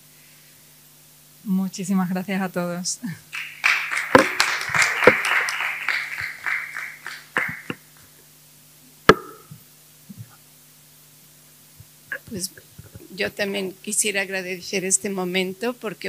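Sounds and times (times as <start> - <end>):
audience applauding: 3.3 - 8.0
sharp knock: 4.2 - 4.4, 9.1 - 9.6.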